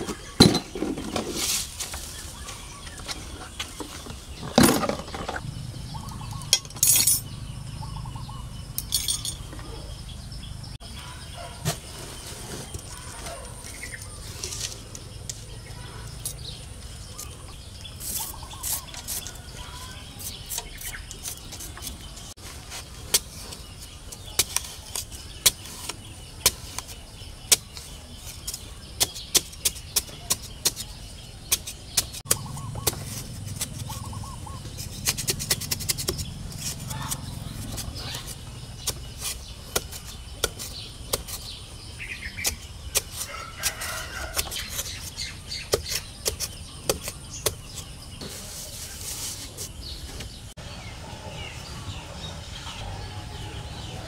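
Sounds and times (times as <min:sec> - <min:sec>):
birds calling: 0:00.0 - 0:54.0
digging tool chopping soil: 0:28.4 - 0:48.4.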